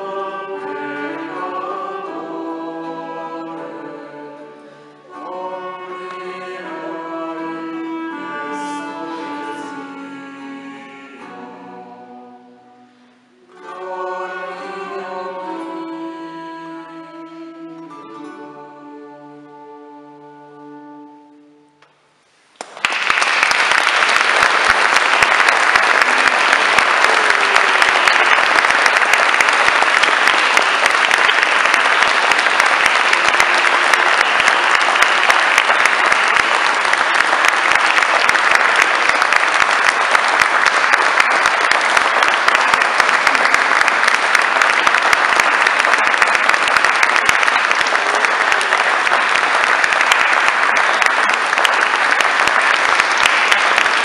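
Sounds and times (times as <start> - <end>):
audience applauding: 22.5 - 54.0.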